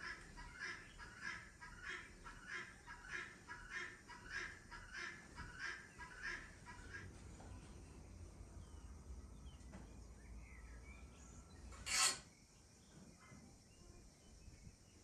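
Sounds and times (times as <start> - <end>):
sharp rasping rustle: 11.8 - 12.3.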